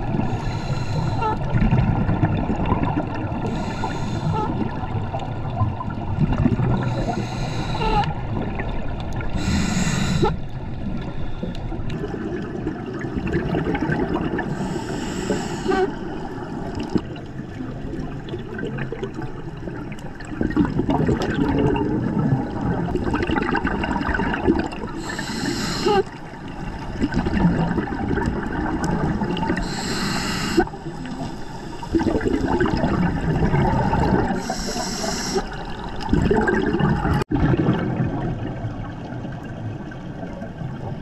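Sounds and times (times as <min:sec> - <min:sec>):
gurgling exhaled bubbles: 0:00.0 - 0:41.0
regulator breathing hiss: 0:00.3 - 0:01.2, 0:03.5 - 0:04.4, 0:06.8 - 0:08.1, 0:09.4 - 0:10.4, 0:14.5 - 0:16.0, 0:25.0 - 0:26.2, 0:29.6 - 0:32.1, 0:34.4 - 0:35.6.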